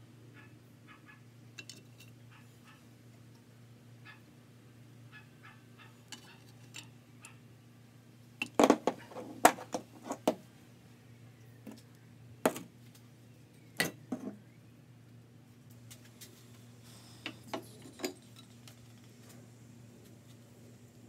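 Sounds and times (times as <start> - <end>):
metal engine parts clinking: 1.6 - 2.2.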